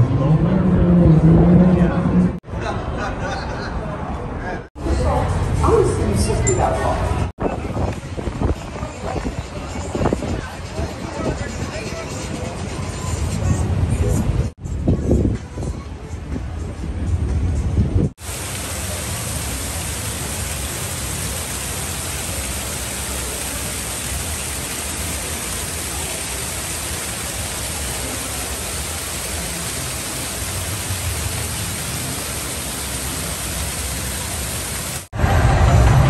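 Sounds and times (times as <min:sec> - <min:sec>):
waterfall splashing into pool: 0:18.2 - 0:35.1.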